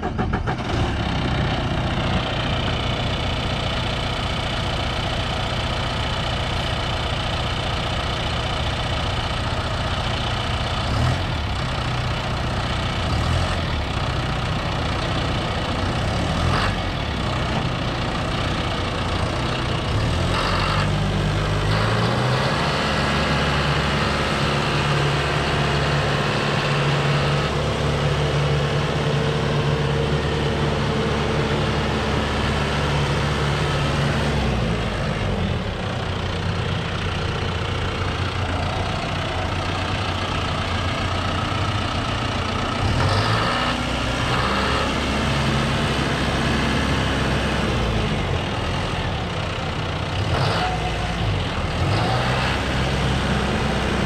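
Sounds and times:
diesel tractor engine idling: 0.0 - 54.0.

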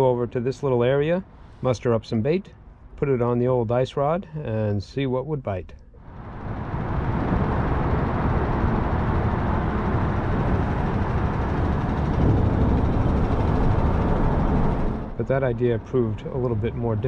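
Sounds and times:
traffic rumbling over bridge: 5.6 - 17.0.

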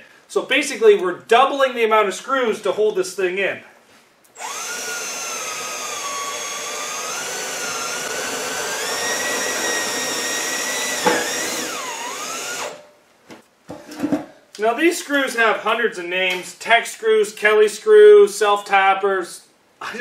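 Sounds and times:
power drill motor whine: 4.4 - 12.8.

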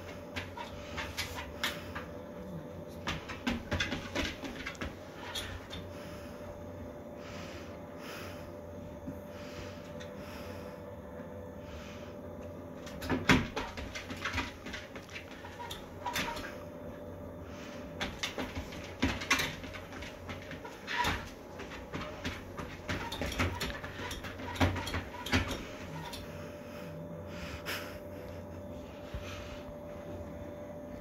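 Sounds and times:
faint steady hum: 0.0 - 31.0
dog paws tapping: 2.9 - 5.8, 12.8 - 16.6, 18.0 - 26.3.

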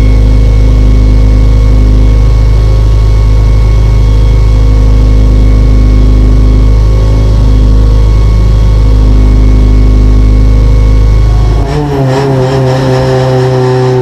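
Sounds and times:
race car engine idling: 0.0 - 14.0.

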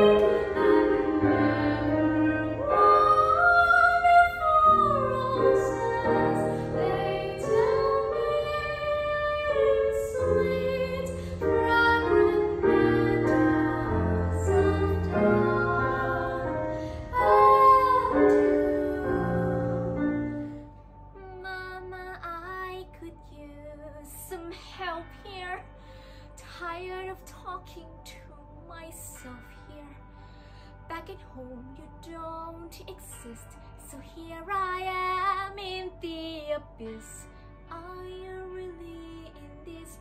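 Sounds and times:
woman singing slow song: 0.0 - 20.6, 21.2 - 25.8, 26.4 - 30.1, 30.9 - 40.0
instrumental backing music: 0.0 - 24.4.

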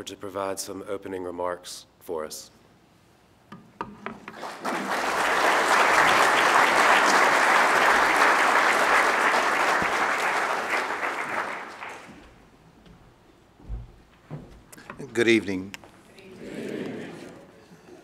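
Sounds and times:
audience applauding: 4.3 - 12.4.

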